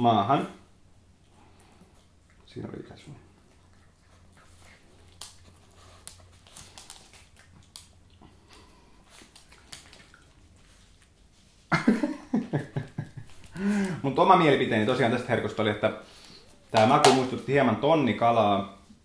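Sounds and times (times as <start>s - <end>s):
dog chewing a crunchy treat: 3.4s - 11.3s.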